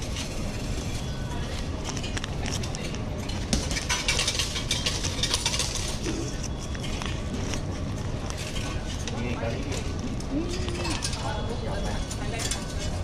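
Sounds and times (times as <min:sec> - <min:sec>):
ticket machine clicks and clatter: 0:01.8 - 0:07.1, 0:08.4 - 0:13.0.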